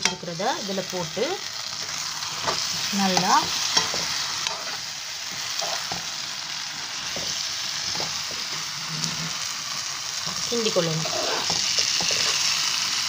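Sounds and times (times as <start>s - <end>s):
food sizzling in a pan: 0.0s - 13.0s
metal spoon scraping a pan: 1.8s - 6.1s, 7.0s - 9.5s, 10.3s - 12.6s.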